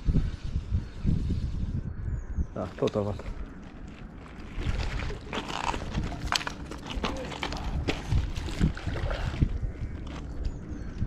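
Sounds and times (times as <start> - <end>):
fish thrashing and splashing: 4.2 - 9.6
landing net scooping through water: 4.3 - 6.5, 7.6 - 9.5.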